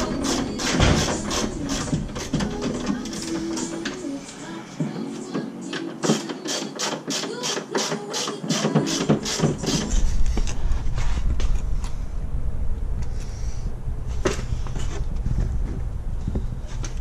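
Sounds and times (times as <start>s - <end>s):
ratchet wrench clicking: 6.1s - 9.9s
low rumble: 9.3s - 17.0s.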